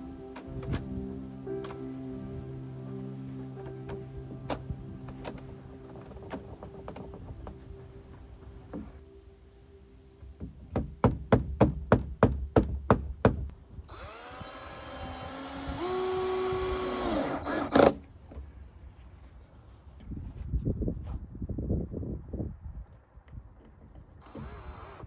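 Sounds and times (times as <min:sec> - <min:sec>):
sharp knocks on wood: 0:10.4 - 0:13.5
cordless drill motor running: 0:13.9 - 0:17.8.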